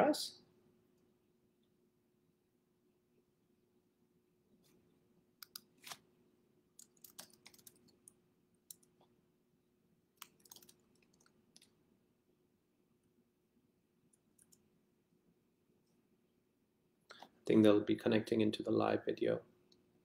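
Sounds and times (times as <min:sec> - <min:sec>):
faint steady hum: 0:00.0 - 0:20.0
keyboard typing clicks: 0:05.4 - 0:05.7, 0:06.8 - 0:09.0, 0:10.2 - 0:11.7.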